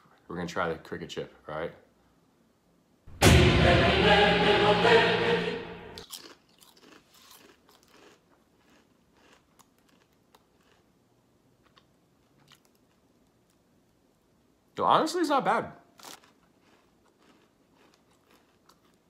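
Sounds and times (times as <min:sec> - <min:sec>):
loud dense noise: 0:03.1 - 0:06.0
crunchy chip being chewed: 0:06.0 - 0:13.7, 0:15.9 - 0:19.0.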